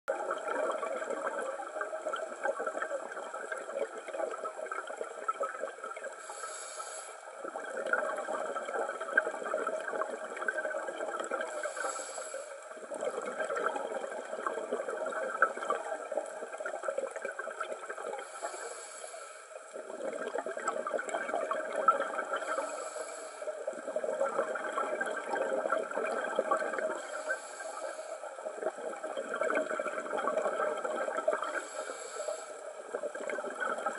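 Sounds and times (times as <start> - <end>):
crackling exhaled bubbles: 0.1 - 33.9
regulator hiss on inhale: 6.1 - 8.0, 11.4 - 12.9, 18.0 - 19.8, 22.3 - 23.9, 26.8 - 28.6, 31.3 - 33.0.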